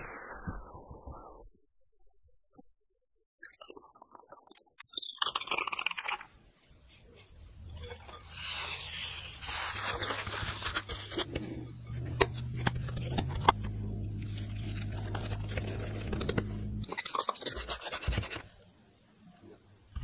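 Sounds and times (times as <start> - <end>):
low steady hum: 9.6 - 16.9.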